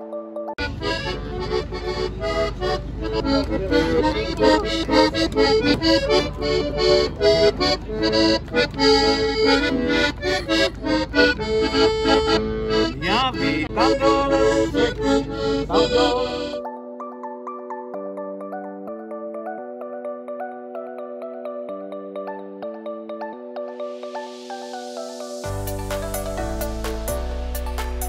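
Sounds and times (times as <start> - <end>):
button accordion playing: 0.0 - 17.3, 23.3 - 28.0.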